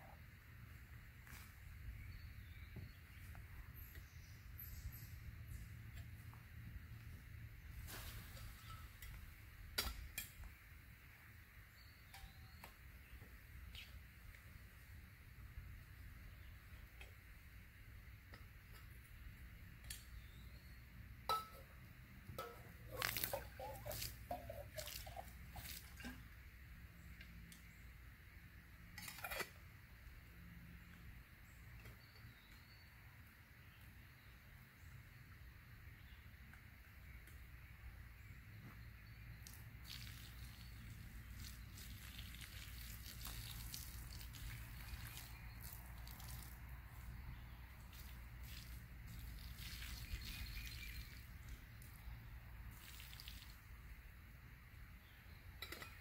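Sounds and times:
metal cup and bottle clinking: 0:21.3 - 0:21.7, 0:22.3 - 0:26.2, 0:55.6 - 0:56.0
liquid pouring from cup: 0:22.9 - 0:26.1, 0:39.8 - 0:46.6, 0:52.7 - 0:53.6.

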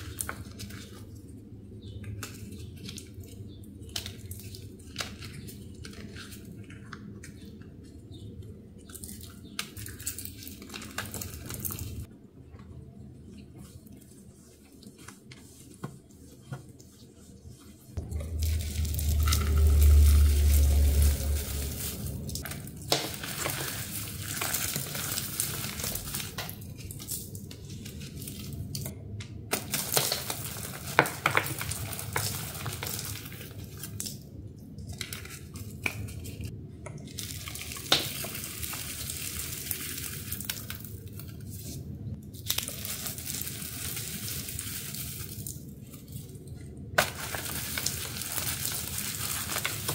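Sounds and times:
low rumble: 0:18.0 - 0:22.8.

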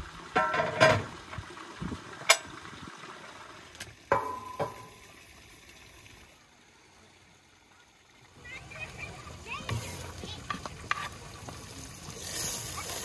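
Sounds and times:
skillet knocking on stovetop: 0:04.1 - 0:04.9.

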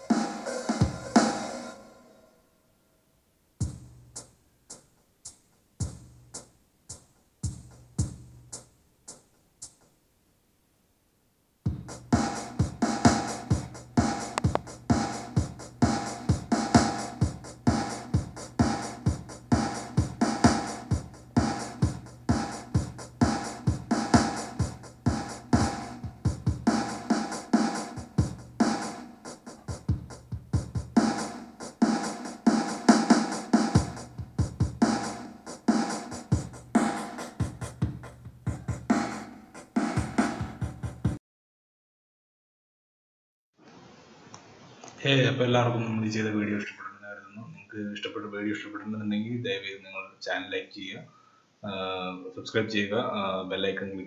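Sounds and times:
electronic dance beat on speaker: 0:00.0 - 0:01.8, 0:03.6 - 0:09.9, 0:11.7 - 0:41.2.

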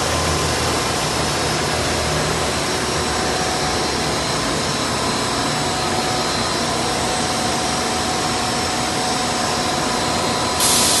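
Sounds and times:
high steady whining tones: 0:00.0 - 0:11.0
rushing hiss: 0:10.6 - 0:11.0.

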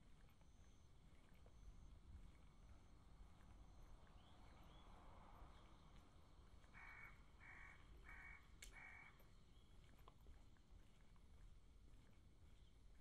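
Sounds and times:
low background hum: 0:00.0 - 0:13.0
crow cawing: 0:06.7 - 0:09.2.

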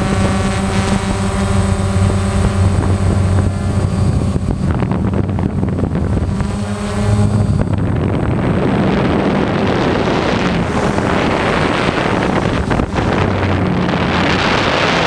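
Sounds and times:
drone propellers humming: 0:00.0 - 0:15.0
wind buffeting microphone: 0:00.0 - 0:15.0.

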